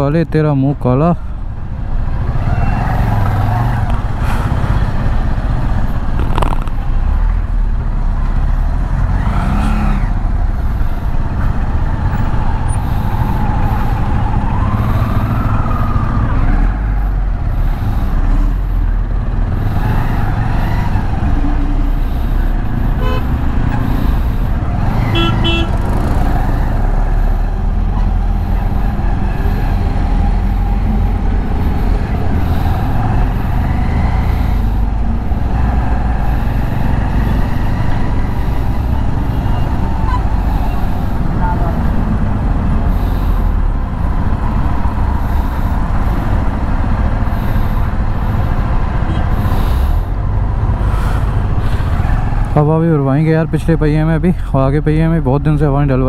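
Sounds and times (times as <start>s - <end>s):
traffic: 0.0s - 56.0s
wind rumble: 1.2s - 52.6s
vehicle horns honking: 22.9s - 24.0s, 25.0s - 25.9s, 49.1s - 49.4s.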